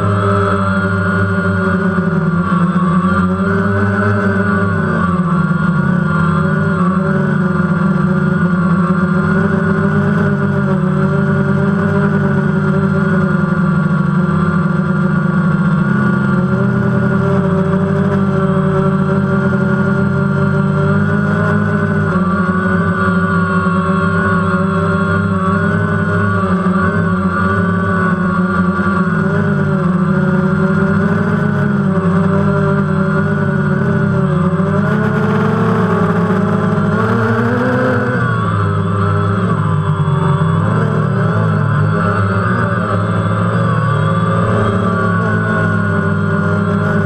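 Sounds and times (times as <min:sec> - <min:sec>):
drone propellers buzzing whine: 0:00.0 - 0:47.0.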